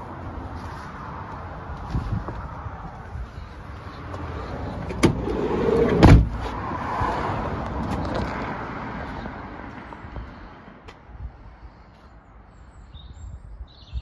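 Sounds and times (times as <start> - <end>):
van door slamming shut: 4.9 - 6.4.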